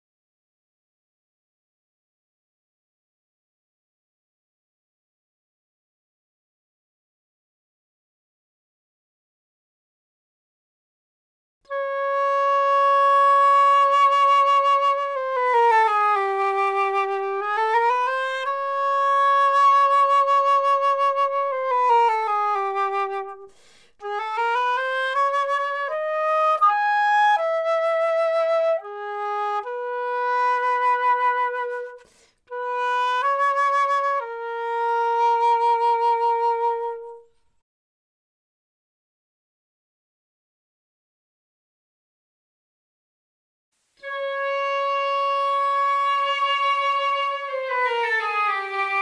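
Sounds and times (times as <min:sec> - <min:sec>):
solo flute slow melody: 0:11.7 - 0:37.5, 0:44.0 - 0:49.0.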